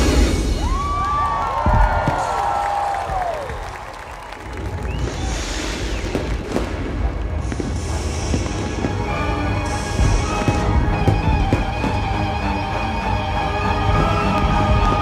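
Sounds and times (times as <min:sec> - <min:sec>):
fireworks bangs and booms: 0:00.0 - 0:12.8, 0:13.7 - 0:15.0
fireworks hissing: 0:04.7 - 0:12.4
show music: 0:06.4 - 0:15.0.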